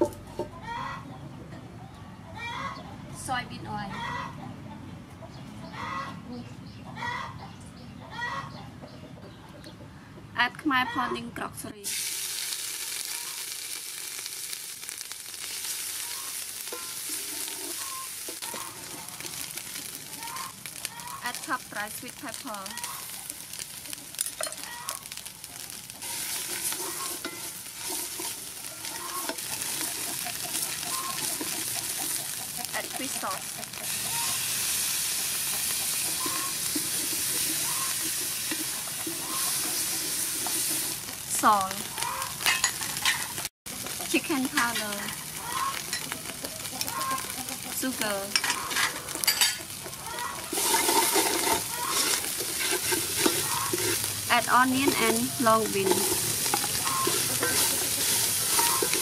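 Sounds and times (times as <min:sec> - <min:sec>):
paste sizzling in oil: 0:11.8 - 0:59.0.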